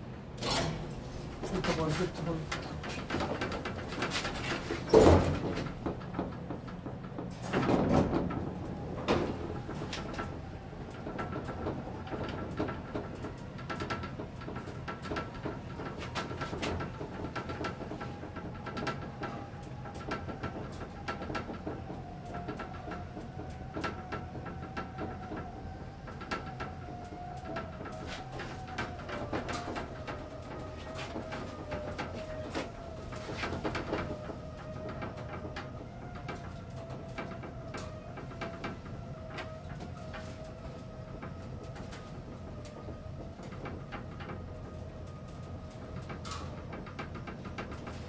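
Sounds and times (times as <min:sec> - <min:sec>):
elevator running noise: 0:00.0 - 0:48.0
elevator doors knocking shut: 0:00.4 - 0:23.8
small clicks and rattles: 0:09.5 - 0:48.0.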